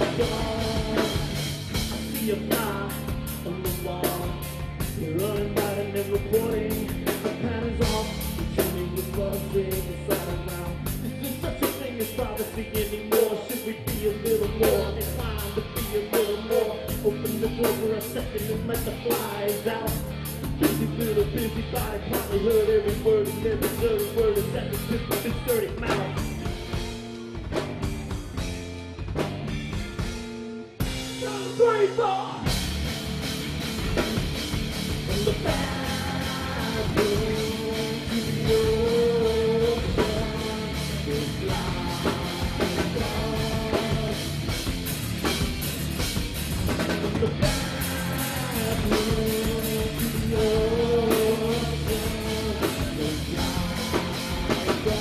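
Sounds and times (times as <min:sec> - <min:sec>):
man singing: 0:00.0 - 0:26.8, 0:31.1 - 0:32.6, 0:34.9 - 0:44.8, 0:46.8 - 0:55.0
bass guitar: 0:00.0 - 0:55.0
drum kit: 0:00.0 - 0:55.0
electric guitar: 0:00.0 - 0:55.0.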